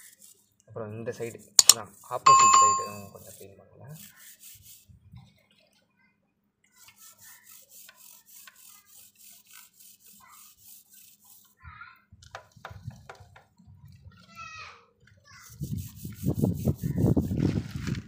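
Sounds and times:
toothbrush scrubbing a chain: 0.0 - 0.5, 1.1 - 4.9, 6.7 - 11.6, 15.4 - 17.4.

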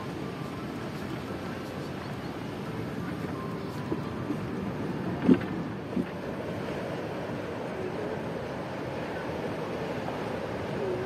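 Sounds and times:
outdoor background rumble: 0.0 - 11.0.

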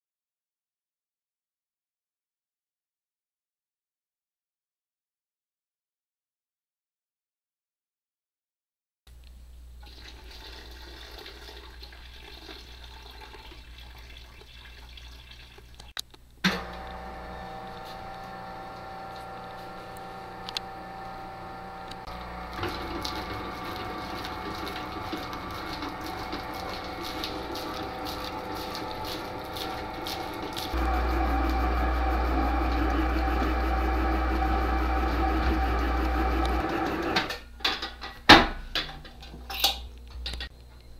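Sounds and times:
liquid pouring into a steel bowl: 9.8 - 15.8
stand mixer motor hum: 16.6 - 37.3.

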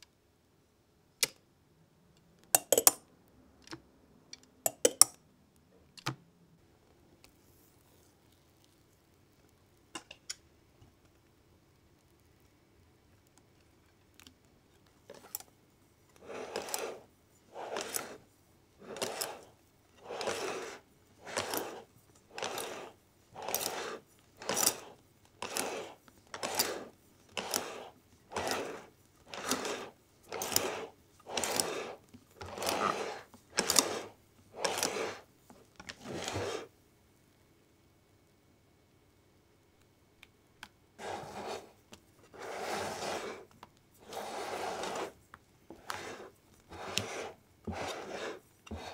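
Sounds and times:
whisk swishing batter: 16.1 - 36.7, 41.0 - 48.9.

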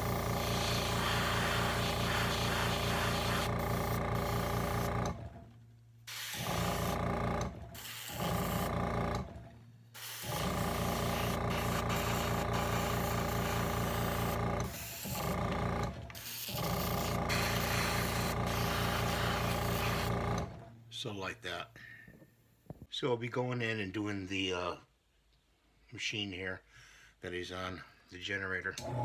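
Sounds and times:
compressor humming: 0.0 - 20.9, 28.8 - 29.0
airbrush spraying hiss: 0.5 - 4.8, 6.1 - 6.9, 7.8 - 8.5, 10.0 - 15.1, 16.2 - 20.1.

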